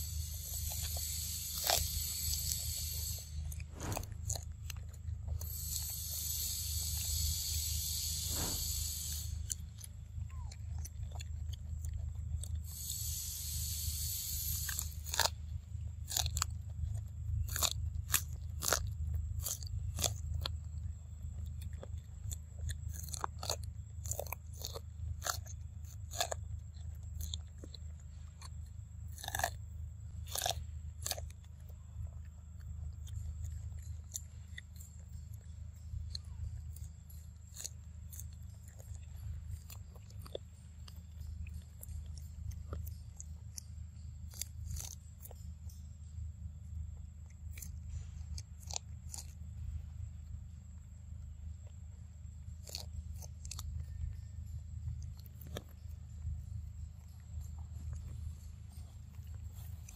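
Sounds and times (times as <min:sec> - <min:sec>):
monkey chewing corn: 0:00.0 - 0:59.9
high hiss: 0:05.5 - 0:09.5, 0:12.7 - 0:15.0.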